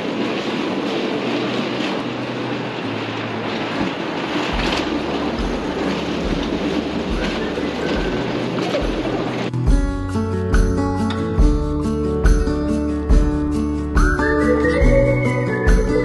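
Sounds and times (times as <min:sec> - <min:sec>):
suitcase wheels rolling: 0:00.0 - 0:09.5
low bass notes: 0:02.5 - 0:16.0.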